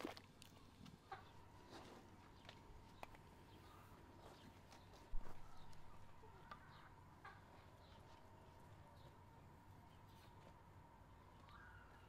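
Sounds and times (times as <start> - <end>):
chickens clucking: 0.8 - 1.9, 3.6 - 9.1.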